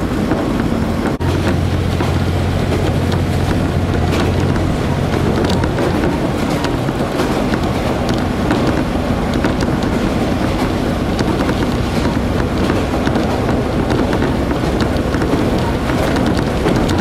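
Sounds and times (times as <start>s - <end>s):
diesel engine low drone: 0.0s - 17.0s
train wheels on rails: 0.0s - 17.0s
small clicks and rattles: 1.1s - 17.0s.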